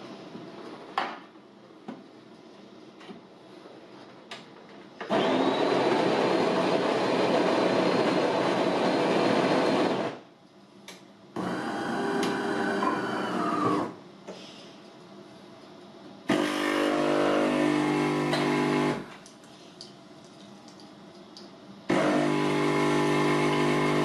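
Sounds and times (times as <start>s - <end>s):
coffee machine motor whining: 5.1s - 10.1s, 11.4s - 14.0s, 16.3s - 19.0s, 21.9s - 24.0s
coffee grinder grinding beans: 21.9s - 24.0s.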